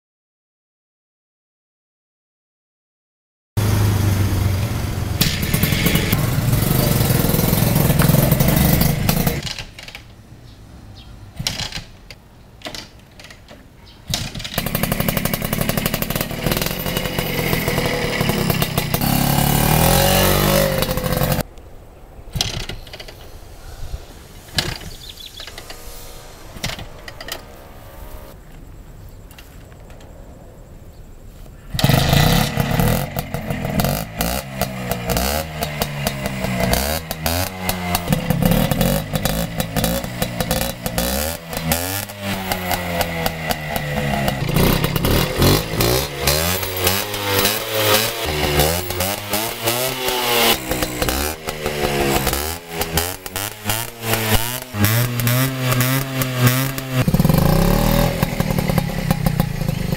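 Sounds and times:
motorcycle engine revving: 0:03.6 - 0:09.6, 0:14.1 - 0:21.5, 0:22.3 - 0:28.5, 0:31.7 - 0:59.9.

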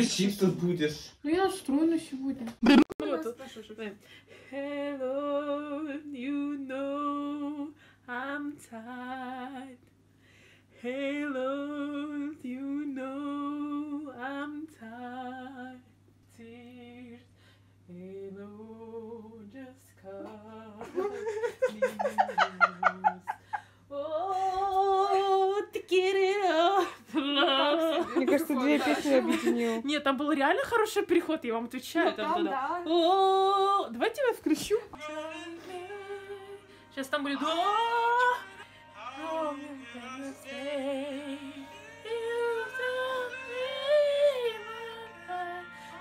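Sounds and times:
woman singing: 0:04.4 - 0:09.9, 0:10.8 - 0:17.3, 0:17.9 - 0:46.0
backing music: 0:35.0 - 0:46.0.

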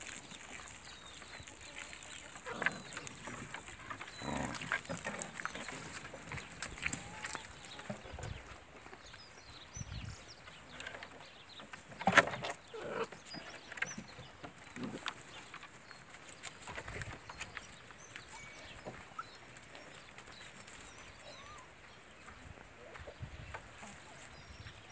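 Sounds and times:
hens clucking: 0:00.0 - 0:08.6
puppies yipping and scuffling: 0:00.0 - 0:24.9
small birds chirping: 0:00.0 - 0:24.9.

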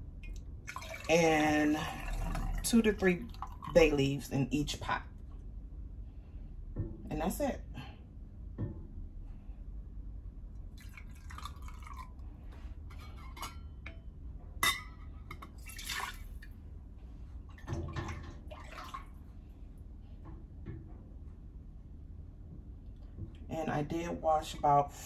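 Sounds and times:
broth splashing into jars: 0:00.2 - 0:03.8, 0:10.8 - 0:12.3, 0:15.5 - 0:16.5, 0:17.6 - 0:19.2.

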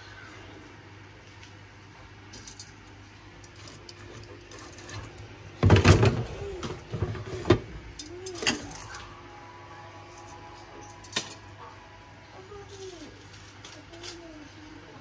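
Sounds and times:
objects clattering and knocking: 0:03.4 - 0:09.1, 0:10.2 - 0:11.6.

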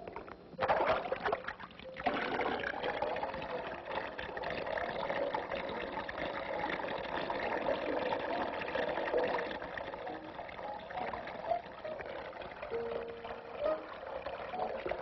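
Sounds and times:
water sloshing and splashing: 0:00.0 - 0:15.0.

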